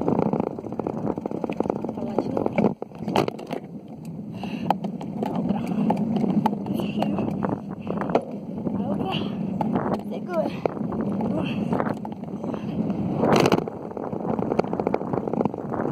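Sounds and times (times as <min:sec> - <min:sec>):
wind buffeting microphone: 0:00.0 - 0:15.9
handling clicks and knocks: 0:01.3 - 0:08.4, 0:09.6 - 0:12.4.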